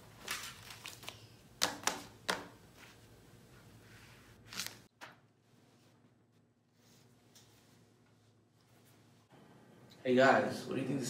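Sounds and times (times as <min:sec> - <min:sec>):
paper rustling: 0:00.0 - 0:01.3, 0:03.8 - 0:05.9.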